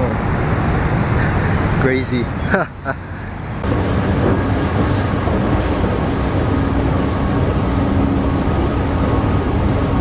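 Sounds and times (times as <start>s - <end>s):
faint mechanical hum: 0.0s - 10.0s
escalator low rumble: 3.3s - 10.0s.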